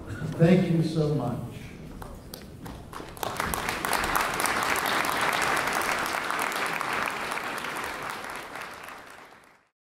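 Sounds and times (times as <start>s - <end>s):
audience applauding: 2.1s - 9.7s.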